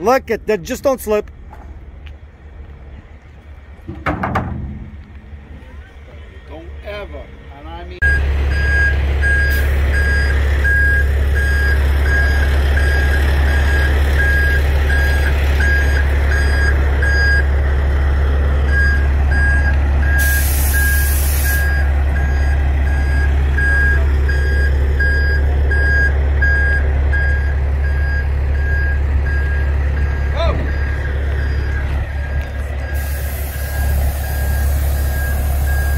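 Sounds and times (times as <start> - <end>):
diesel truck engine idling: 0.0 - 35.9
truck backup alarm beeping: 8.0 - 35.9
compressed air hiss: 20.2 - 21.7, 33.0 - 35.1.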